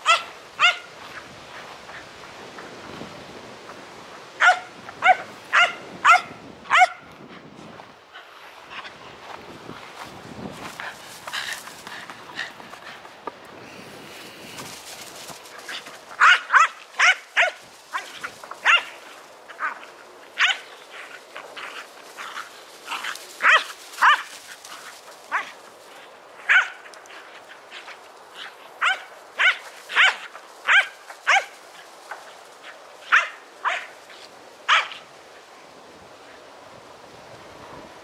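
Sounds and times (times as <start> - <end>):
dogs barking: 0.0 - 0.9, 4.4 - 7.1, 15.6 - 24.4, 26.4 - 26.9, 28.4 - 31.6, 32.6 - 33.9, 34.7 - 35.0.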